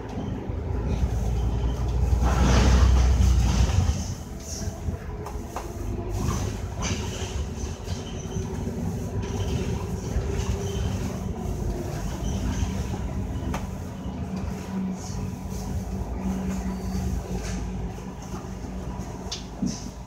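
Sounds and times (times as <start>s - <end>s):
bus engine drone: 0.0s - 20.0s.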